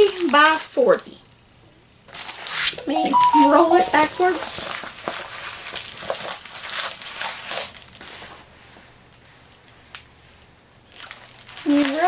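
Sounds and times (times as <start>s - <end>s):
plastic crinkling and rustling: 0.0s - 0.6s, 2.1s - 2.5s, 4.3s - 12.0s.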